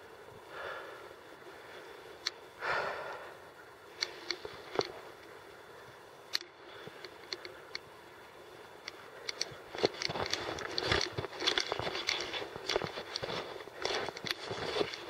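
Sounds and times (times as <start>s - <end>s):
crunching footsteps: 9.3s - 15.0s.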